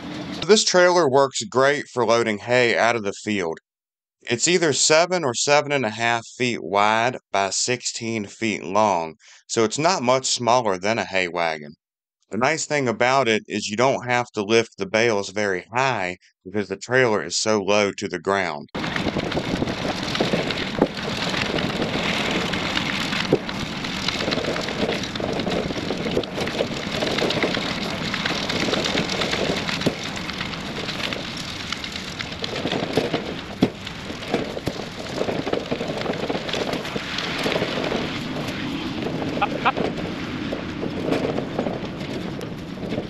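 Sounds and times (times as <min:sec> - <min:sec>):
trailer rattling: 0:00.0 - 0:01.5, 0:18.8 - 0:43.0.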